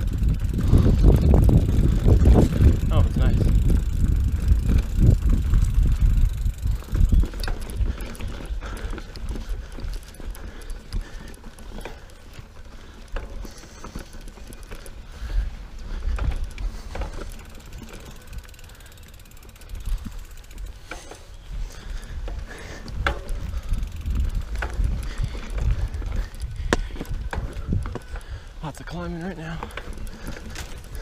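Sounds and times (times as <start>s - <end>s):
bike knocking and rattling: 0.0s - 31.0s
bike tyres rumbling on dirt: 0.0s - 31.0s
freewheel hub ticking: 0.0s - 31.0s.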